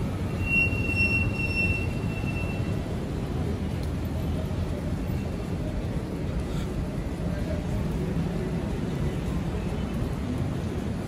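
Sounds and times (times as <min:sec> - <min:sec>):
high steady squeal: 0:00.0 - 0:02.8
city traffic rumble: 0:00.0 - 0:11.0.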